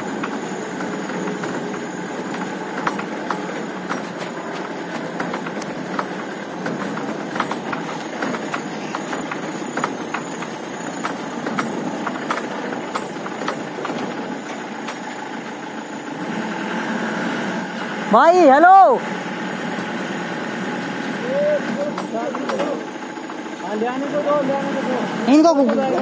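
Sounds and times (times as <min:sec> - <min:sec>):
truck engine rumbling: 0:00.0 - 0:26.0
clicks and rattles: 0:00.1 - 0:15.1.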